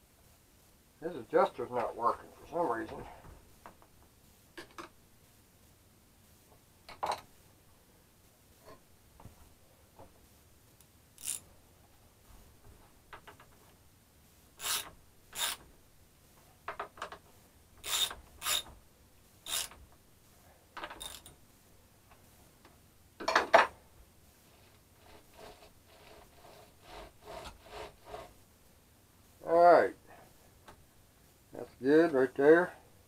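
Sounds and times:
metallic scraping of chainsaw chain: 0:14.6 - 0:15.6, 0:17.8 - 0:18.7, 0:19.5 - 0:19.8, 0:21.0 - 0:21.3.

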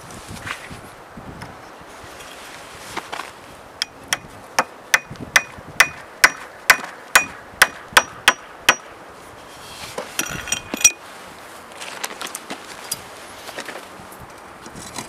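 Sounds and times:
hammer blows on wooden peg: 0:03.8 - 0:08.9.

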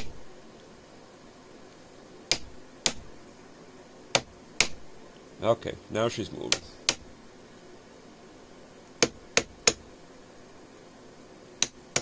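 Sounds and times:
hammer tapping metal punch: 0:02.3 - 0:03.1, 0:04.1 - 0:04.8, 0:09.0 - 0:09.8, 0:11.6 - 0:12.0.

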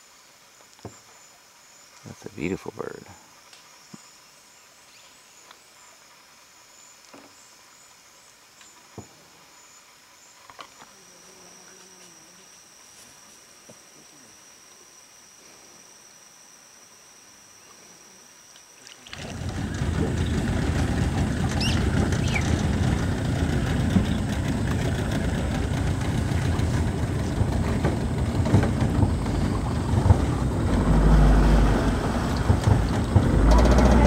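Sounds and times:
insects buzzing: 0:00.0 - 0:34.0
loud low rumbling noise: 0:19.2 - 0:34.0.

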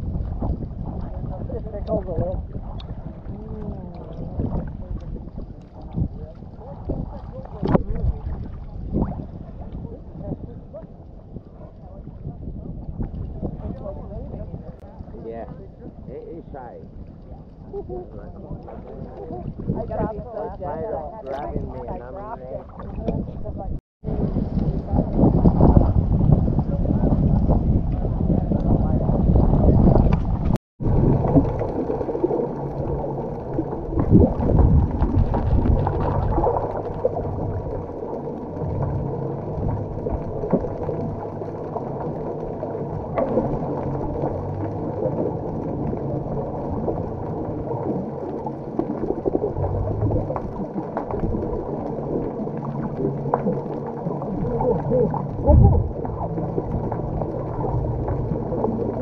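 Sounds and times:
water and wind noise: 0:00.0 - 0:59.0
boat engine drone: 0:29.8 - 0:59.0.

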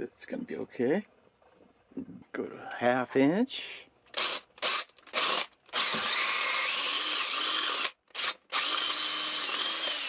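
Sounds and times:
electric drill boring into wood: 0:04.2 - 0:10.0.

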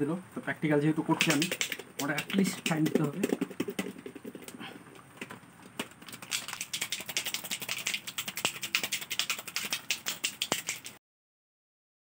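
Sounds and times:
objects rattling in shaken bowls: 0:01.2 - 0:04.7, 0:05.9 - 0:11.0.

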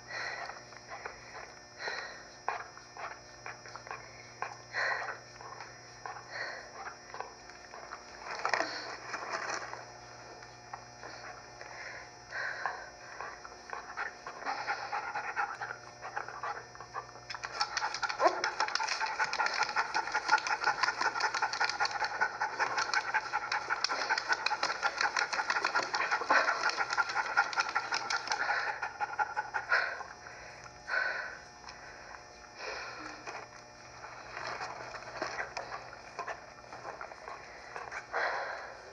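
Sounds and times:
soft breaths: 0:00.0 - 0:16.3, 0:29.6 - 0:38.9
rapid dog-like panting: 0:12.3 - 0:30.3.

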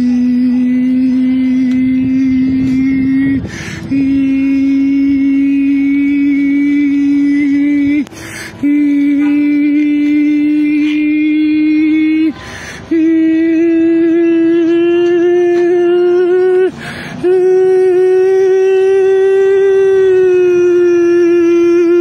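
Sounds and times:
man droning long notes: 0:00.0 - 0:22.0
quick breath: 0:03.4 - 0:03.9, 0:08.1 - 0:08.6, 0:12.4 - 0:12.9, 0:16.7 - 0:17.2.

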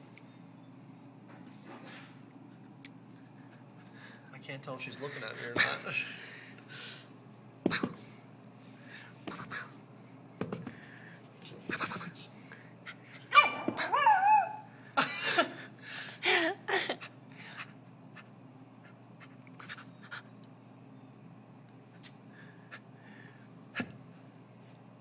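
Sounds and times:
puppy whining: 0:13.3 - 0:14.7.

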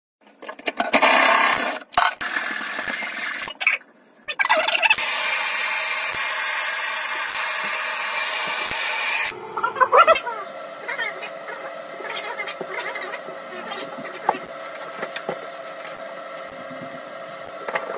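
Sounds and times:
gas torch hissing: 0:05.0 - 0:09.4.

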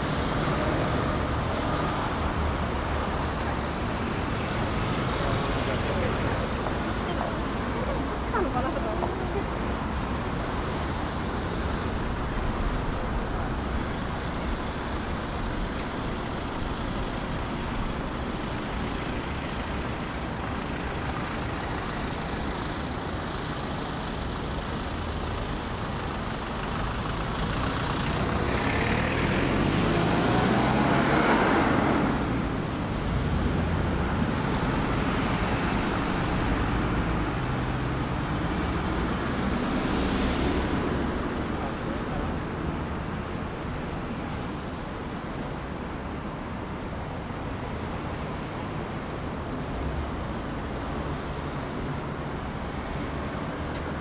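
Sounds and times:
city street traffic noise: 0:00.0 - 0:54.0
vehicle passing by: 0:27.6 - 0:41.4.

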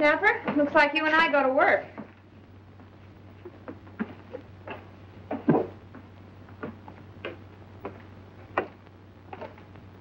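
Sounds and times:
footsteps on hard floor: 0:02.8 - 0:08.8.

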